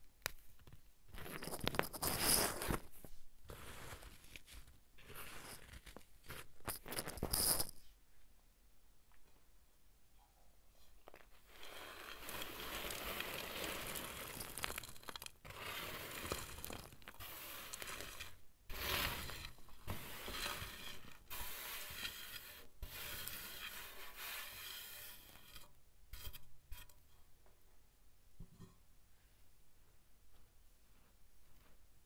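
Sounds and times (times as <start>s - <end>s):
fingers crumbling dry powdery clumps: 11.6s - 24.5s.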